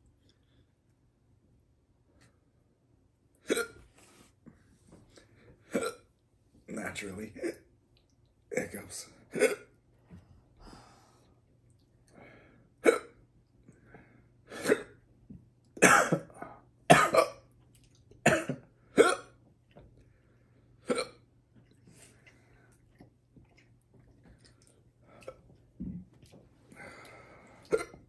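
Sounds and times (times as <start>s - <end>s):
man coughing: 9.4s - 9.7s, 15.8s - 17.4s, 18.2s - 19.2s.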